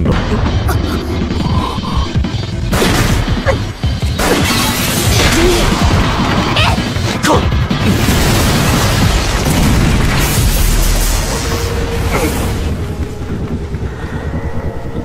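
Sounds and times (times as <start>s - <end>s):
dramatic action music: 0.0s - 15.0s
heavy explosion blast: 7.5s - 13.8s.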